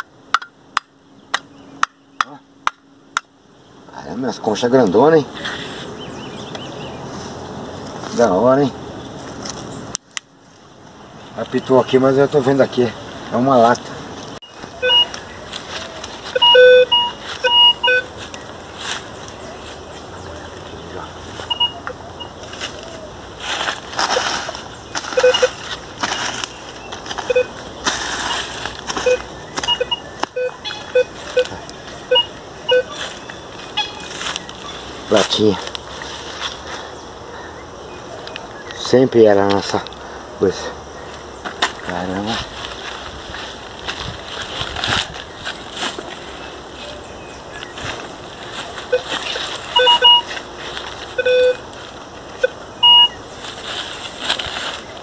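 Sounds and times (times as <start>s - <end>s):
hoe scraping in soil: 5.4s - 6.0s
metal detector beeps: 14.4s - 18.2s, 21.4s - 22.6s, 24.9s - 25.8s, 27.2s - 27.6s, 28.3s - 35.2s, 48.9s - 50.4s, 51.2s - 51.7s, 52.4s - 53.2s.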